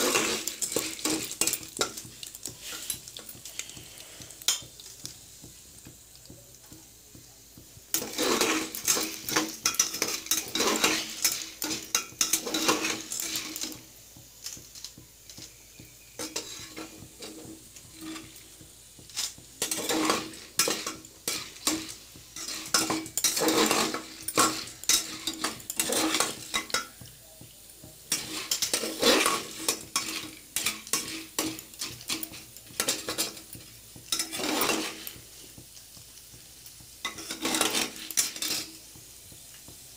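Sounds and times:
metal paddle scraping a pot: 0:07.9 - 0:13.8, 0:16.1 - 0:18.4, 0:19.6 - 0:26.9, 0:28.1 - 0:35.2, 0:37.0 - 0:38.8.

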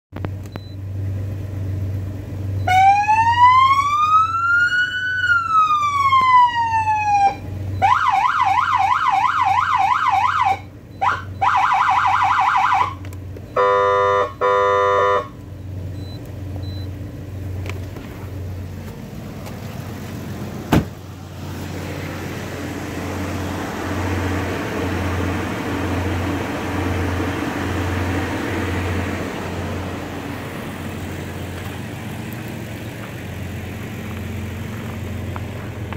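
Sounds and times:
click: 0:00.2 - 0:00.7
electronic siren wailing: 0:02.6 - 0:13.0
air horn blasts: 0:13.6 - 0:15.4.

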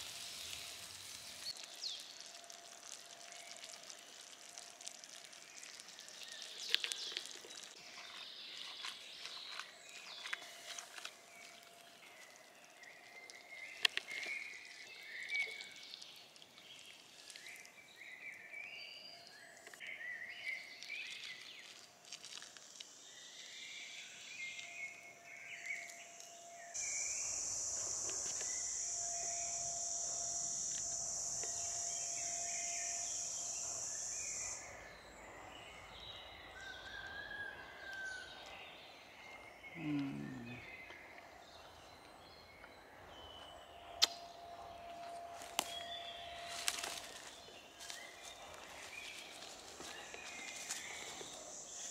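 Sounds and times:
steady high-pitched hiss: 0:00.0 - 0:07.8, 0:10.0 - 0:36.7, 0:41.5 - 0:51.9
birds chirping: 0:38.1 - 0:51.9.

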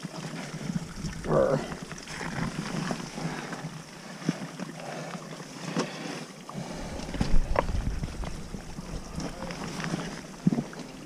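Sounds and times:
rushing water: 0:00.0 - 0:11.0
wind buffeting microphone: 0:06.8 - 0:10.8.

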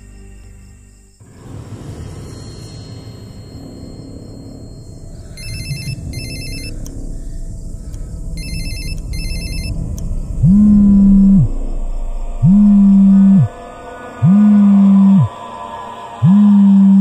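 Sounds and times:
low rumbling background: 0:01.1 - 0:17.0
loud low hum: 0:01.2 - 0:17.0
phone ringtone trilling: 0:03.0 - 0:06.8, 0:08.4 - 0:09.8.

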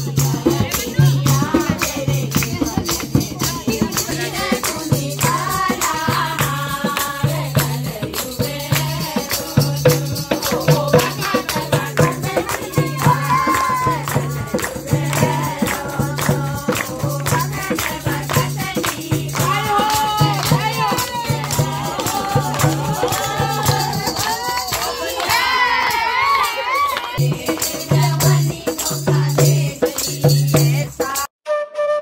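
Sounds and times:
hand drums: 0:00.0 - 0:25.5, 0:27.1 - 0:31.3
rhythmic handclaps: 0:00.0 - 0:31.2
women singing in chorus: 0:00.0 - 0:31.3.

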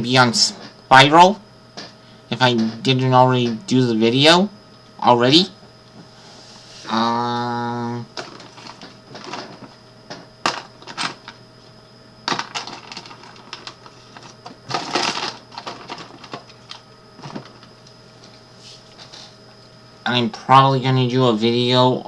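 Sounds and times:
low steady hum: 0:00.0 - 0:22.0
small objects being handled: 0:12.2 - 0:18.4.

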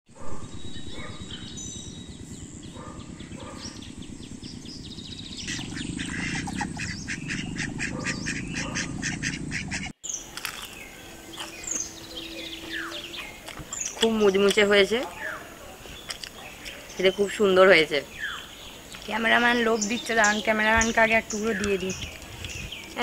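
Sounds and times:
small birds chirping: 0:00.1 - 0:23.0
ducks quacking: 0:05.4 - 0:10.0, 0:11.0 - 0:23.0.

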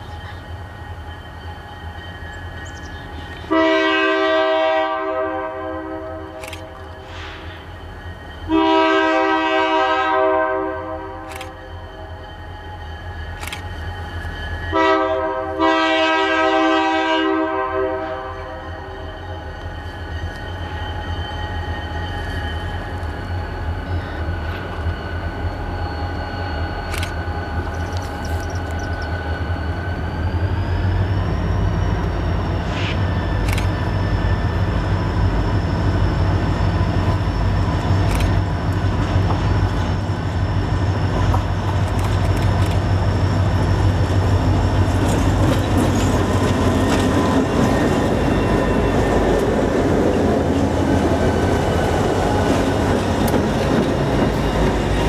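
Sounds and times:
locomotive engine rumble: 0:00.0 - 0:55.0
thin high whine: 0:10.4 - 0:15.6.

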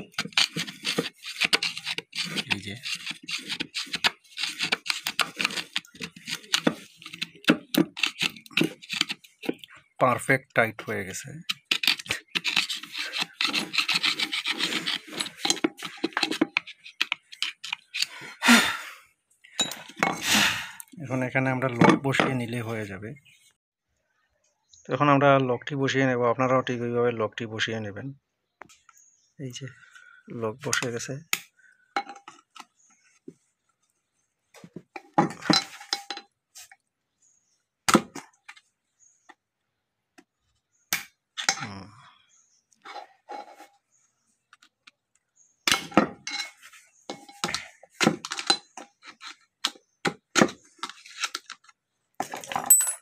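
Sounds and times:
metal tool scraping metal shim: 0:00.0 - 0:09.8, 0:11.4 - 0:18.3
metal tool clinks and scrapes: 0:11.4 - 0:18.2, 0:19.5 - 0:20.3, 0:35.0 - 0:36.3, 0:45.9 - 0:49.4, 0:52.2 - 0:53.0.

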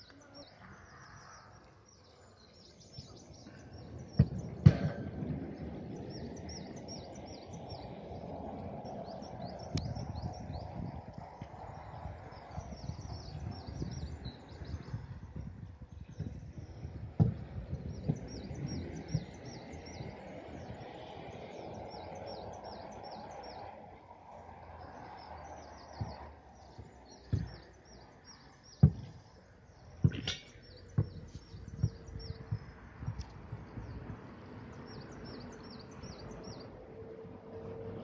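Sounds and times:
birds chirping: 0:00.0 - 0:37.1
sharp low knocks: 0:04.1 - 0:05.6, 0:28.7 - 0:29.3, 0:30.0 - 0:34.2.

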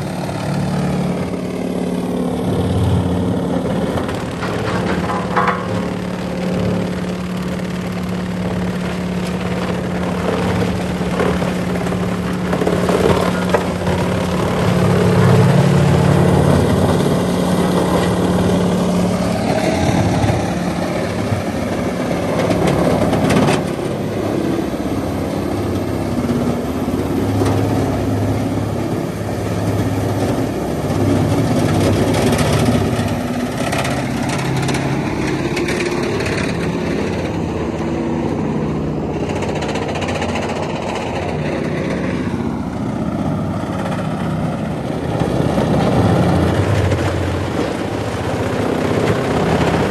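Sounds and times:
diesel engine droning: 0:00.0 - 0:49.9.

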